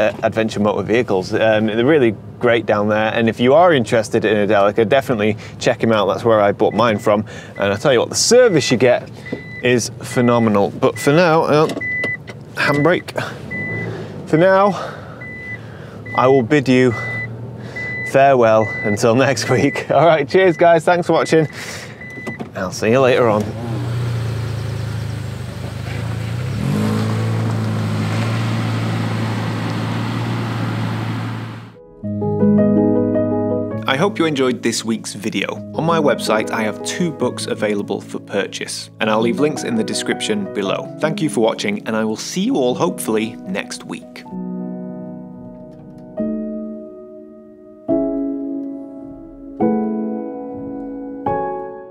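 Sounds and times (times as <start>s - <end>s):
car engine pulling away: 8.8s - 19.8s, 22.5s - 31.8s
soft piano chords: 31.8s - 51.9s.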